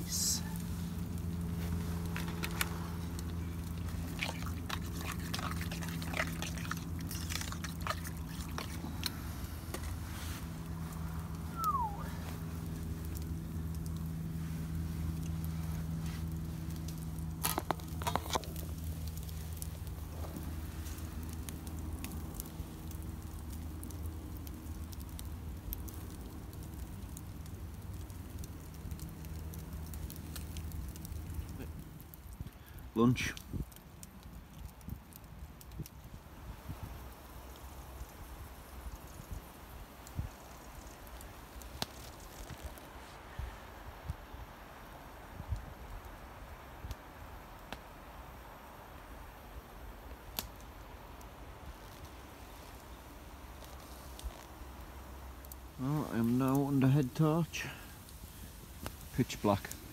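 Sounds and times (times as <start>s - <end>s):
steady low hum: 0.0s - 26.5s
campfire crackling: 0.0s - 59.9s
low steady rumble: 0.0s - 59.9s.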